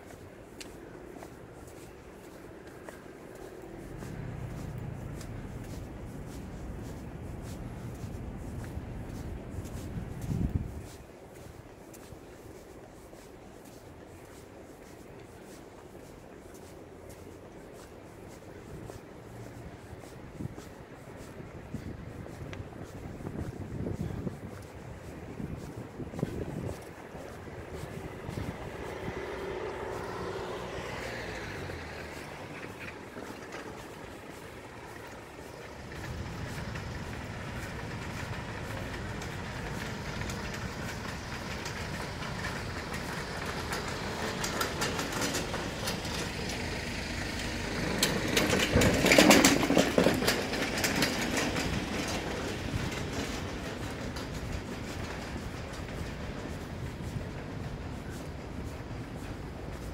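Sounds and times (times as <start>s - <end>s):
car passing: 0.0s - 11.5s, 25.3s - 59.9s
hand cart wheels rattling on paving: 0.0s - 59.9s
street rumble: 0.0s - 59.9s.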